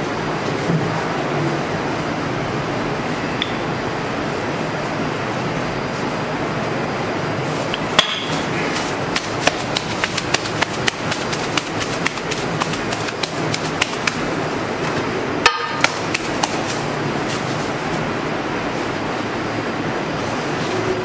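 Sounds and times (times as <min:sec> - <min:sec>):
busy kitchen roar: 0:00.0 - 0:21.0
utensils clicking and clattering: 0:08.4 - 0:14.2.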